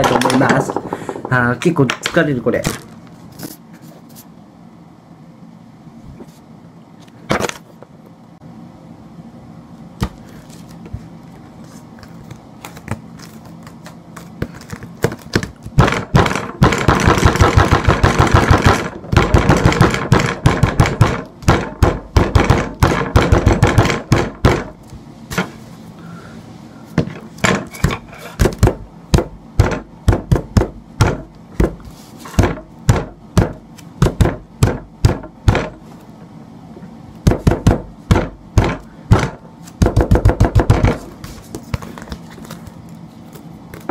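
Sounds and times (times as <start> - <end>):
fist pounding on tabletop: 15.8 - 24.8, 27.0 - 31.8, 32.4 - 35.8, 37.2 - 41.0.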